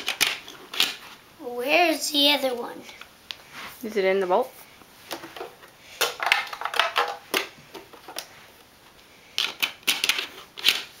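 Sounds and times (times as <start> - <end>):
plastic toy parts clicking: 0.0 - 1.0, 9.4 - 11.0.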